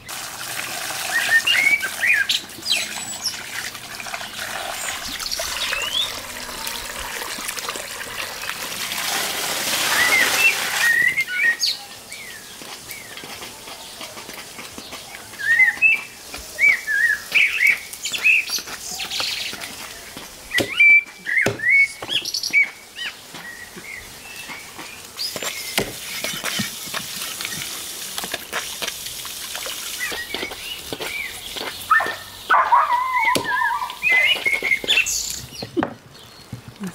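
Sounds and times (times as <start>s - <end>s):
songbirds chirping: 1.0s - 8.6s, 10.0s - 27.9s, 29.6s - 36.9s
knife chopping on wooden stump: 20.6s - 20.8s, 21.4s - 22.2s, 25.3s - 27.1s.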